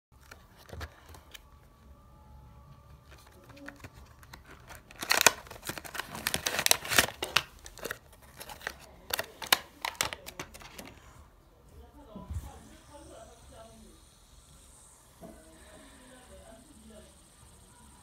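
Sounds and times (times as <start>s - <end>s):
packaging rustling and crinkling: 0.2s - 1.5s, 3.0s - 11.1s.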